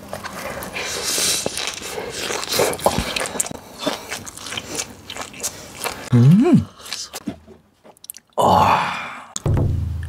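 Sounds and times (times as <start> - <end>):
crunchy bites and chewing: 0.1 - 7.2.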